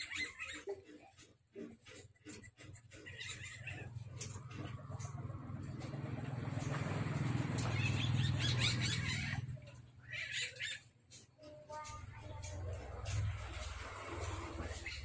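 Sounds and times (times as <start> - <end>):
high squeak: 0.0 - 0.8
civet purring churr: 1.9 - 11.2.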